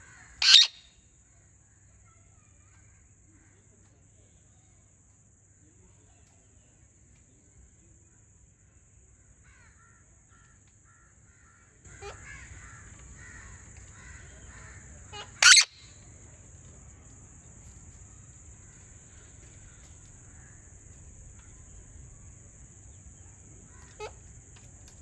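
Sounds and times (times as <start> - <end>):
parakeet harsh screech: 0.4 - 0.9, 15.2 - 15.8.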